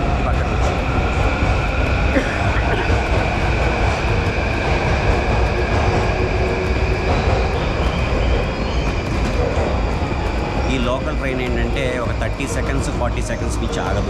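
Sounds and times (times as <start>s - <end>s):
high whine: 0.0s - 14.0s
train wheels rumbling on rails: 0.0s - 14.0s.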